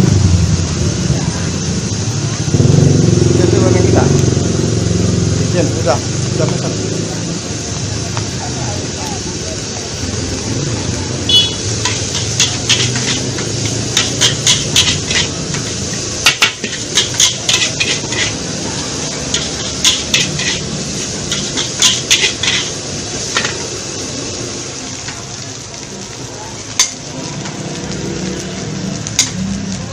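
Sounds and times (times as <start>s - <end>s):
rice frying: 0.0s - 29.9s
metal spatula scraping wok: 11.3s - 23.8s, 29.0s - 29.4s.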